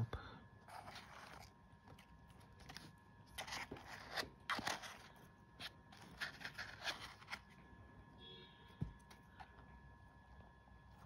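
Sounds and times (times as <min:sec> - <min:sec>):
packaging rustling and scraping: 0:00.6 - 0:07.6.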